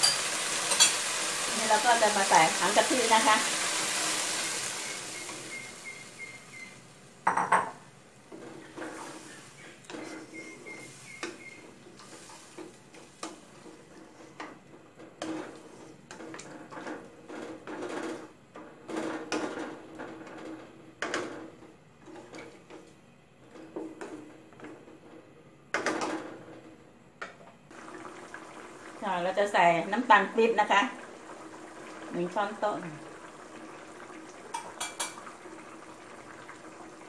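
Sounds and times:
liquid sizzling in hot pot: 0.0s - 7.2s, 8.6s - 14.1s, 27.7s - 37.0s
wooden spatula scraping metal pot: 8.3s - 16.8s.

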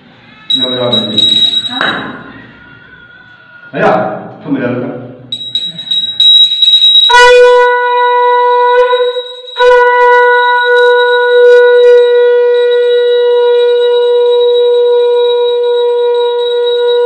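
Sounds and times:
conch shell blown: 6.9s - 17.0s.

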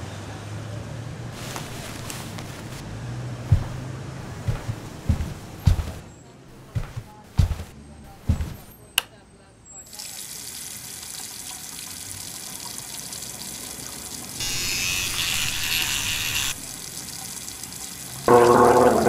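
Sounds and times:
sink tap running: 14.4s - 17.3s.

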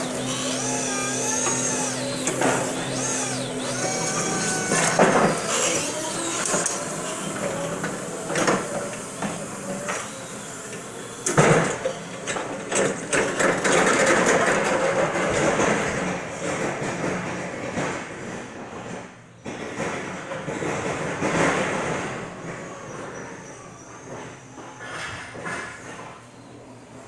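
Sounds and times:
electric motor hum: 0.0s - 13.6s
sharp clanks and knocks: 0.0s - 23.1s.

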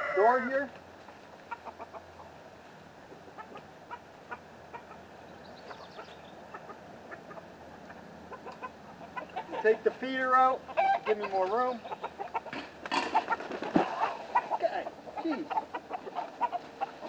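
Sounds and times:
hens clucking: 0.0s - 17.0s
high chirping: 4.8s - 8.0s.

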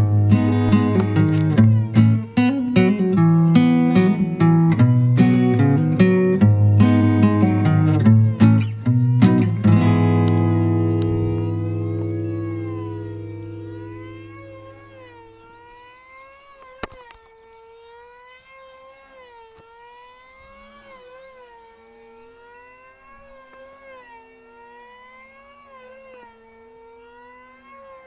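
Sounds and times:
low steady tone: 0.0s - 15.7s
model plane motor whining: 0.0s - 28.0s.

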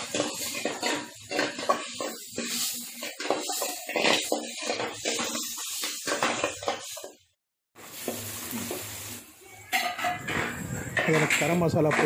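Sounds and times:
metal spoon scraping a pan: 0.0s - 7.2s, 9.6s - 12.0s
vegetables sizzling in oil: 0.0s - 12.0s.

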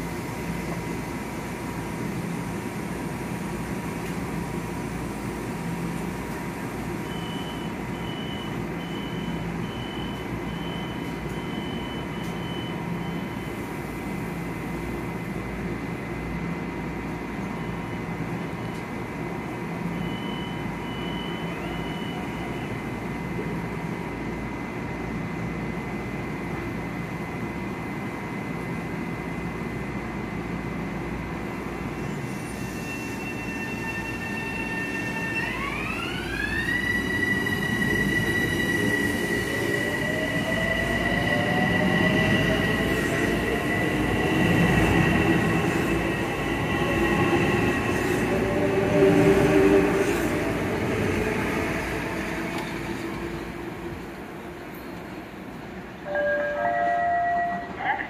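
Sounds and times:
machinery hum with high whine: 0.0s - 58.0s
short high beeps: 56.1s - 57.8s.

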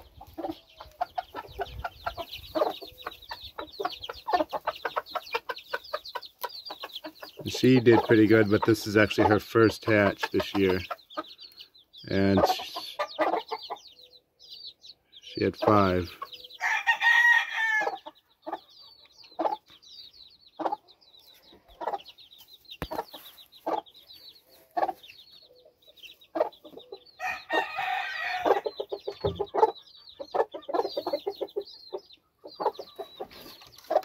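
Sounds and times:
chicks peeping: 0.0s - 34.0s
hen clucking: 0.0s - 34.0s.

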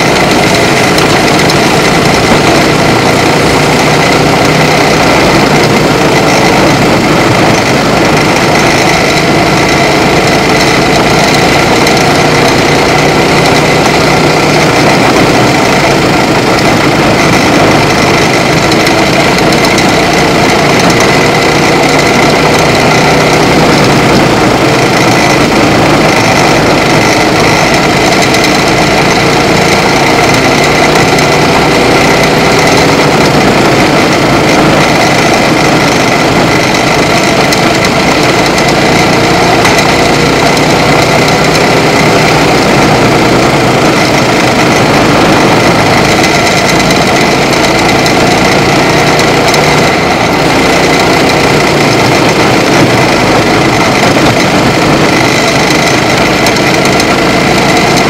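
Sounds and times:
kart engine revving: 0.0s - 58.0s.

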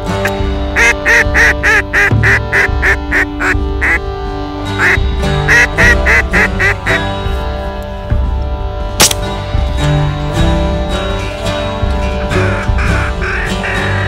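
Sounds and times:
background music: 0.0s - 14.0s
duck quacking: 0.2s - 4.1s, 4.7s - 7.1s, 12.2s - 14.0s.

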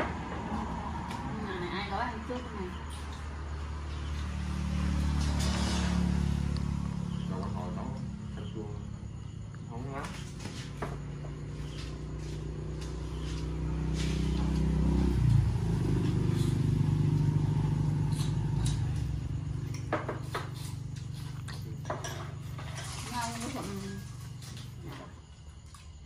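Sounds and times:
vehicle engine droning past: 0.0s - 25.2s.

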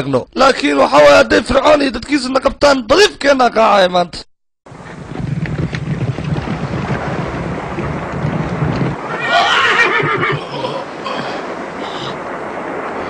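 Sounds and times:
steady rumbling noise: 4.7s - 13.0s
horse whinnying: 9.0s - 10.9s.

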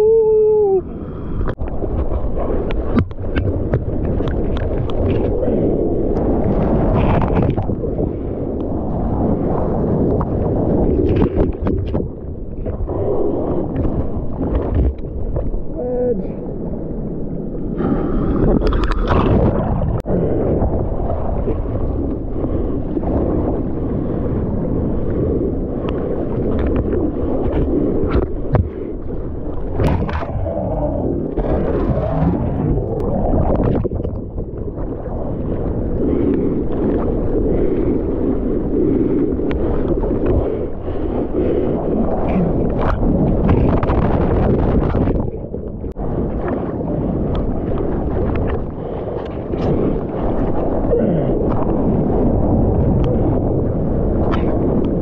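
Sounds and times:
person whooping shout: 0.0s - 0.9s
sea water rushing and splashing: 0.0s - 55.0s
surf wash: 0.0s - 55.0s
wind on microphone: 0.0s - 55.0s.

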